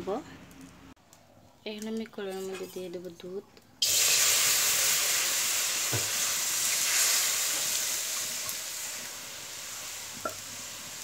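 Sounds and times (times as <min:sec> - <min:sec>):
milk sizzling in hot pan: 0:03.8 - 0:11.0.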